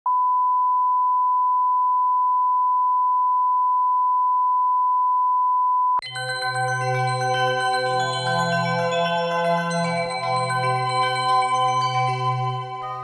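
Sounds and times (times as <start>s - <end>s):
bell-like chiming music: 6.0s - 13.0s.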